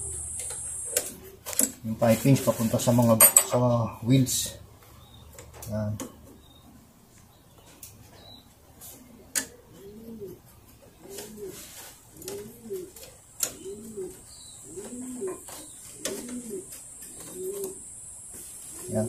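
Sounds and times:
pigeon cooing: 0.0 - 1.5, 8.8 - 17.9, 18.7 - 19.0.

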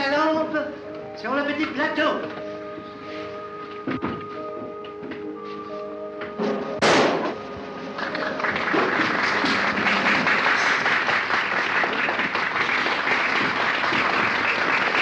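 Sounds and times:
audience applauding: 7.9 - 15.0.

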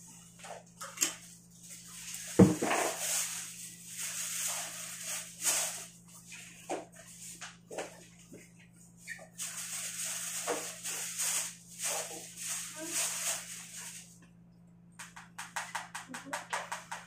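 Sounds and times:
plastic bags and gloves crinkling: 1.2 - 8.4, 9.0 - 14.1.

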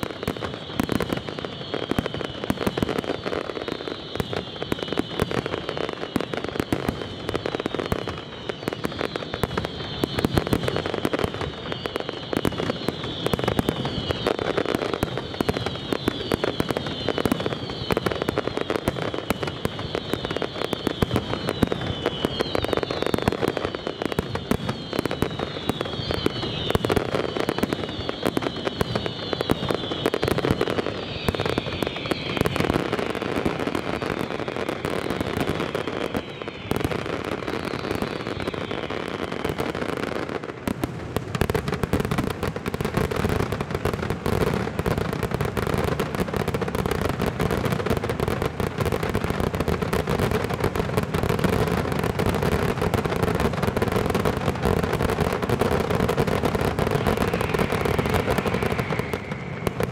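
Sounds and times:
falling firework whistles: 0.0 - 59.9
firework bangs and crackling: 0.0 - 59.9.

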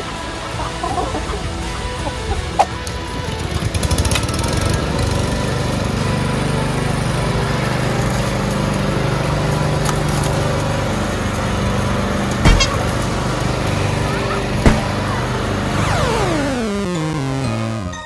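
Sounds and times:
lawn mower running: 2.7 - 17.9
sharp knock: 12.4 - 12.8, 14.6 - 14.9.

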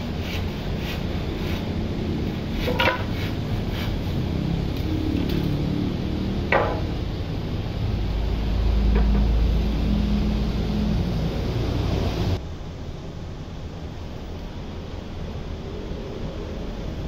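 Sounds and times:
low hum: 0.0 - 17.0
steady low rumble: 0.0 - 17.0
sharp knocks with ringing: 6.5 - 7.0.

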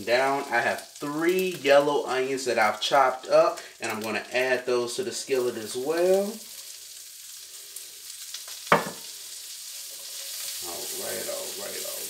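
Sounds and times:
onions sizzling in butter: 0.0 - 12.0
spatula stirring in skillet: 5.3 - 12.0.

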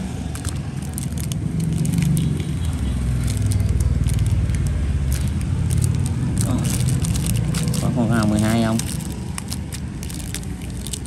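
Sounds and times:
plastic bags crinkling: 0.2 - 11.0.

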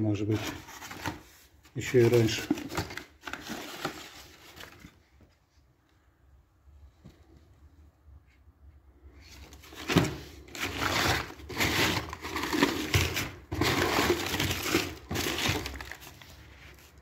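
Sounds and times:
plaster rubble crunching: 9.8 - 16.1.

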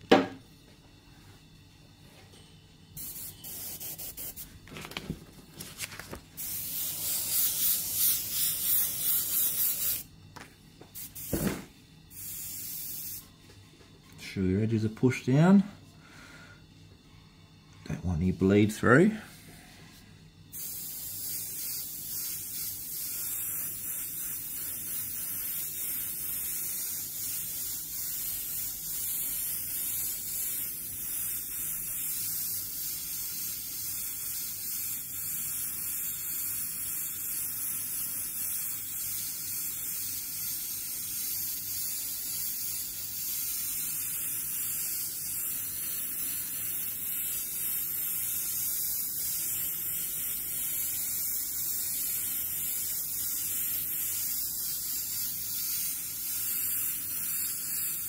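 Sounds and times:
airbrush spraying hiss: 3.0 - 4.6, 6.4 - 10.1, 10.9 - 13.3, 19.3 - 58.0.

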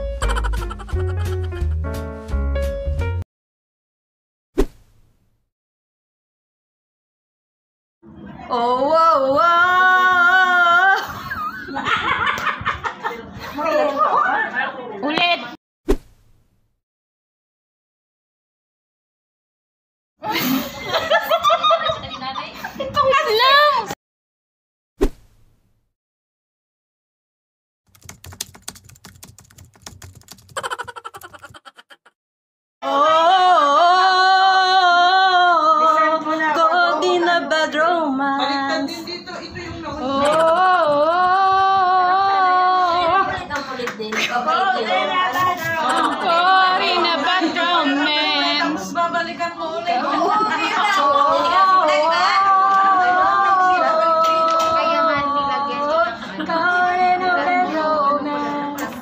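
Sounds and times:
woman singing long high notes: 32.8 - 36.2.

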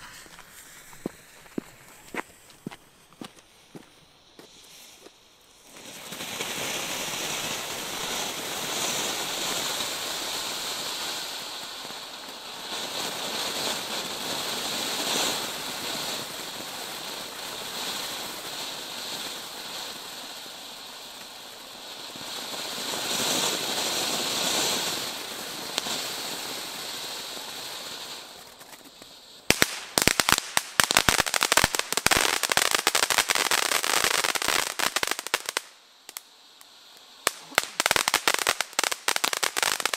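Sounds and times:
firework fountain hissing: 0.0 - 39.9
rapid firework crackling: 4.5 - 39.9.

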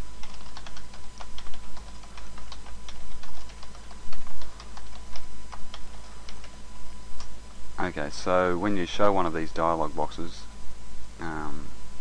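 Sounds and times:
steady low hum: 0.0 - 12.0
computer keyboard typing: 0.2 - 6.6.

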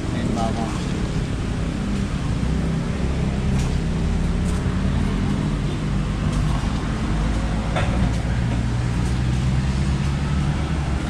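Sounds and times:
road traffic: 0.0 - 11.0
vehicle engine rumble: 0.0 - 11.0.

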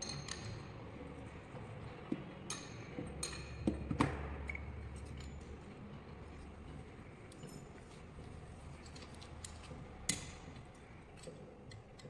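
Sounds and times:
tools clicking and knocking: 0.0 - 0.8, 2.1 - 5.6, 8.8 - 12.0.

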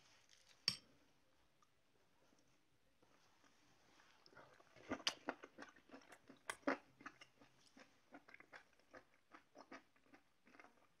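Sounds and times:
person chewing crunchy food: 4.2 - 11.0.

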